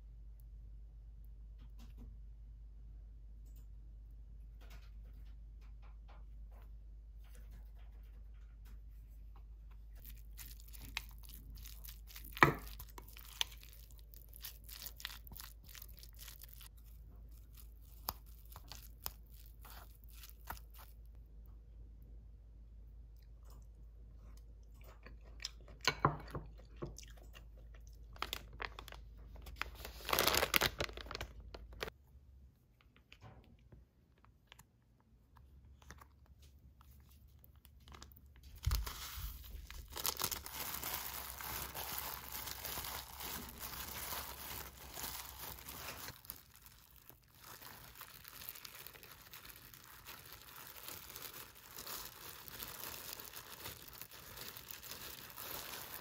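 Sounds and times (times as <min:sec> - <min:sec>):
plastic gloves crinkling: 0:09.8 - 0:21.2, 0:28.1 - 0:32.0, 0:35.8 - 0:56.0
sachet tearing open: 0:10.0 - 0:21.0, 0:28.2 - 0:31.9, 0:37.8 - 0:56.0.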